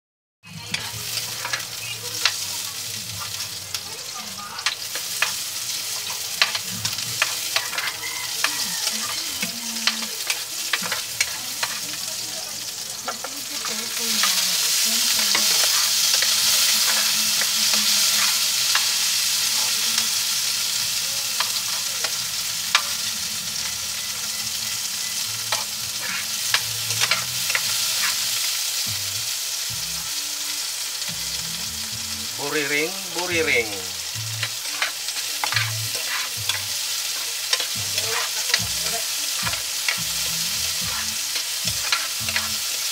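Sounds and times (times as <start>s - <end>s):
onion sizzling in frying pan: 0.4s - 42.9s
spatula scraping pan: 4.6s - 12.2s, 12.9s - 19.8s, 25.4s - 28.4s, 34.4s - 42.9s.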